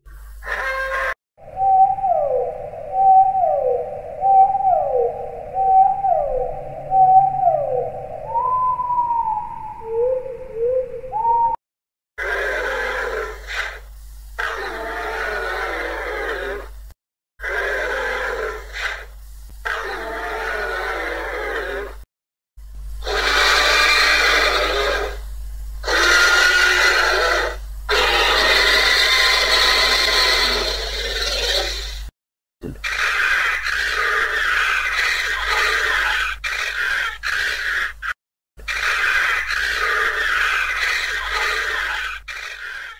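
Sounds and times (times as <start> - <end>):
smooth gliding whistled creature call: 1.4 - 11.6, 25.8 - 32.0
rough grating dinosaur call: 12.2 - 16.7, 17.4 - 22.0, 23.0 - 25.2, 25.8 - 42.9.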